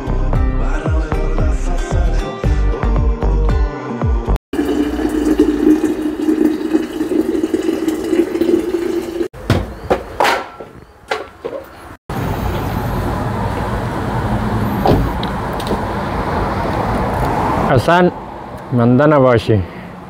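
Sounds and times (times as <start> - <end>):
hot water pouring into a flask: 4.6 - 9.3
street traffic noise: 9.4 - 20.0.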